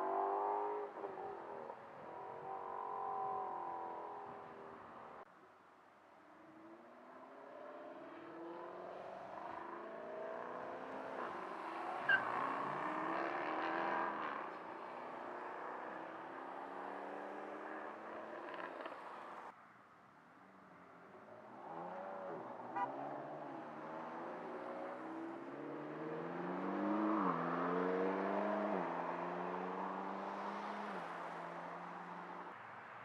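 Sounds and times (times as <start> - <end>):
cars accelerating past: 7.3 - 19.2, 21.5 - 32.5.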